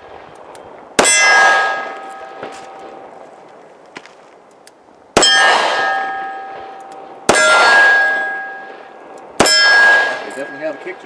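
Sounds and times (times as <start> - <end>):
steel target ringing: 1.0 - 3.1, 5.2 - 11.0.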